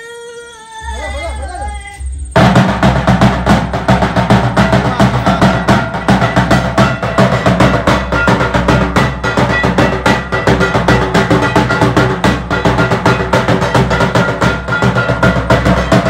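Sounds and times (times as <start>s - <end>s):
sustained ringing tones: 0.0s - 16.0s
barrel drums played fast: 2.3s - 16.0s.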